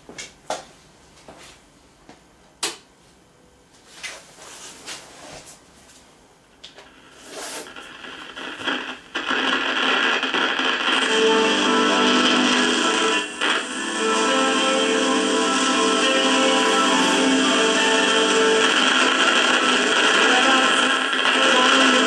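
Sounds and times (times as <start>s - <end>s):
faint crackles: 6.7s - 11.6s
radio loudspeaker sound: 7.1s - 22.0s.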